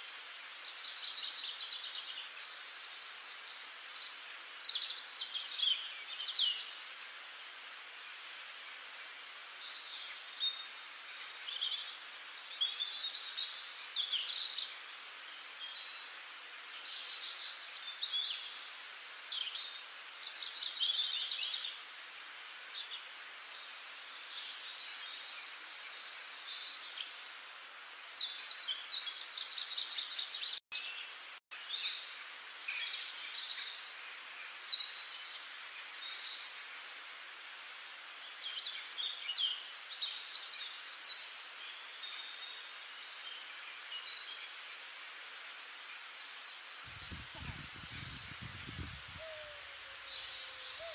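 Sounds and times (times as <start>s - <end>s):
steady background hiss: 0.0s - 50.9s
birds chirping and trilling: 46.0s - 50.9s.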